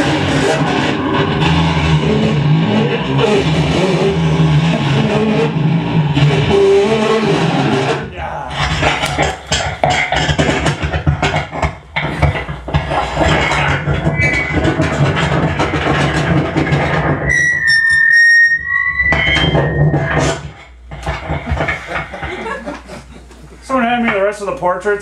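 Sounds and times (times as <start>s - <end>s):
steady low hum: 0.0s - 17.3s, 19.1s - 25.0s
crackling amplified noise: 0.0s - 17.8s, 18.6s - 25.0s
high piercing whistle: 17.3s - 20.2s.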